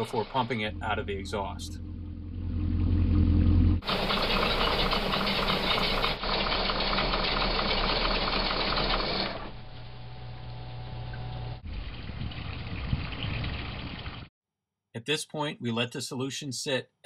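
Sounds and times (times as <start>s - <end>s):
boat engine clattering: 0.0s - 3.0s, 3.8s - 9.6s.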